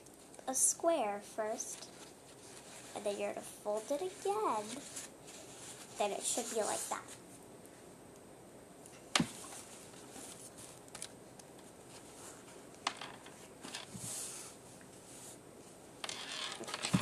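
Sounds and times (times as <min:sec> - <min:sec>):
paper towels rustling: 0:01.2 - 0:07.4.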